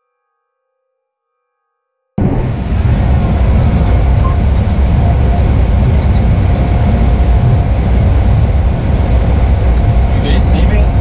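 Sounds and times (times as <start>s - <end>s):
combine harvester rumbling: 2.2s - 11.0s
faint steady whine: 2.2s - 11.0s.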